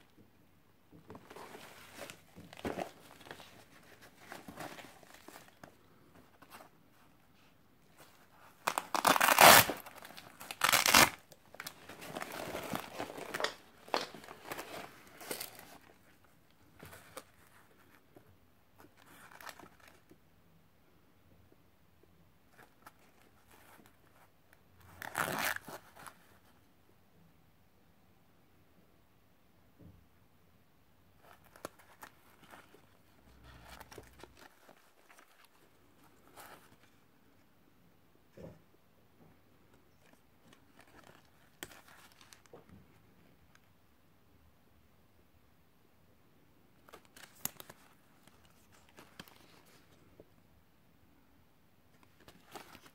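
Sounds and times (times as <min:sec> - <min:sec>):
nylon gear rustling: 0:01.1 - 0:06.7, 0:07.9 - 0:16.2, 0:25.0 - 0:26.2
velcro ripping apart: 0:08.6 - 0:11.2.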